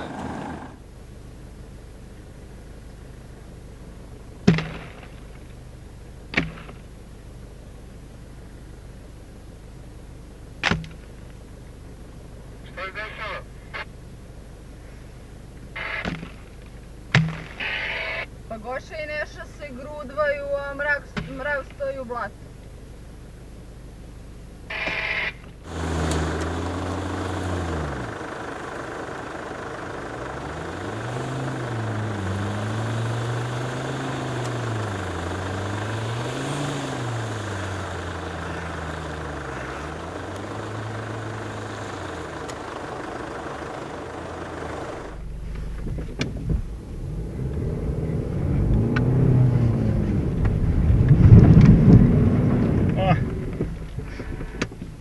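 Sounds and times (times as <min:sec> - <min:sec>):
engine revving up and down: 0:00.0 - 0:00.8, 0:24.7 - 0:54.7
low rumble inside car cabin: 0:00.0 - 0:55.0.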